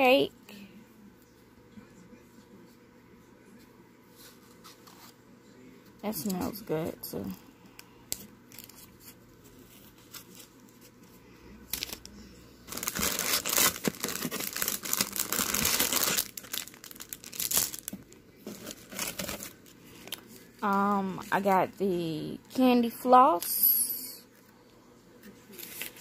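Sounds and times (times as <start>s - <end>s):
cellophane bags crinkling: 11.7s - 12.1s, 12.7s - 20.3s.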